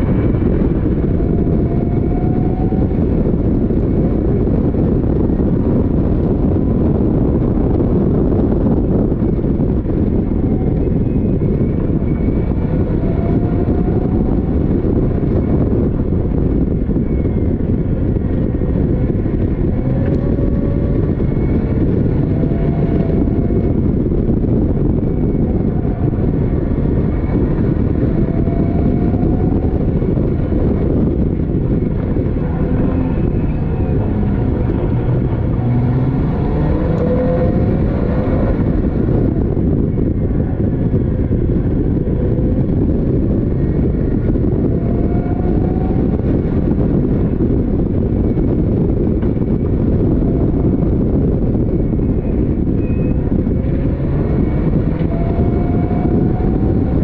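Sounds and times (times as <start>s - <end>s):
race car engine running hard: 0.0s - 57.0s
rush of air and road noise: 0.0s - 57.0s.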